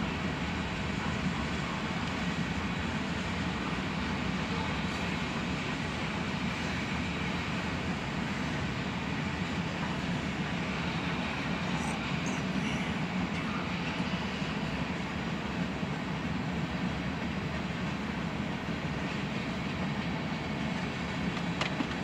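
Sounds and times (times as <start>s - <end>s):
freight train wheels rumbling on rail: 0.0s - 22.0s.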